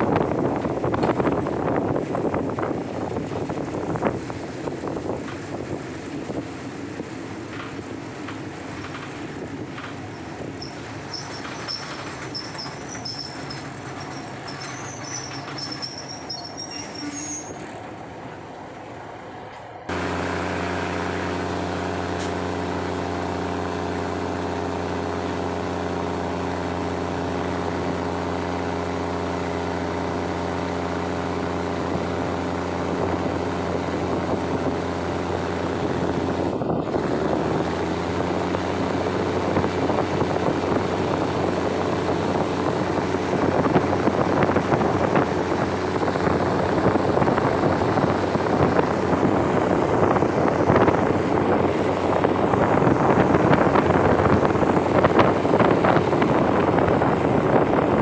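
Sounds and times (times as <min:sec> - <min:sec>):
train wheels rumbling on rails: 0:00.0 - 0:20.2
diesel engine droning: 0:00.0 - 0:58.0.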